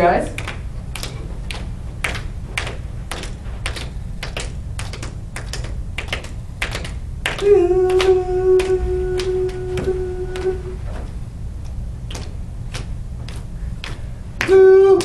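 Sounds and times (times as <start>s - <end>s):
person singing a held note: 7.4s - 11.1s.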